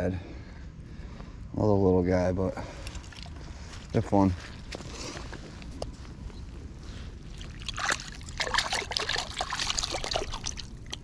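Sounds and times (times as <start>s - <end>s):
dripping water: 7.3s - 11.0s
fish splashing in water: 7.3s - 11.0s.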